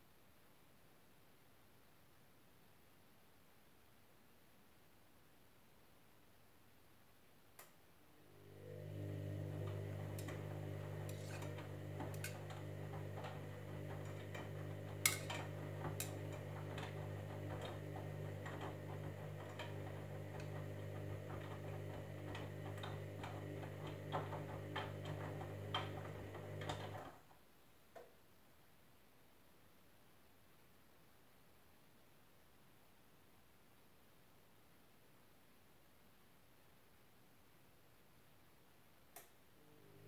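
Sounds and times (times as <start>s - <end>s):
washing machine drum motor hum: 8.3s - 27.2s.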